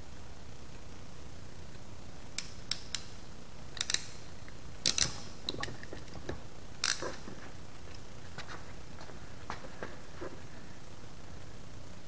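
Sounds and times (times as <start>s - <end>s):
wire tool clicking and snapping: 2.4s - 8.0s.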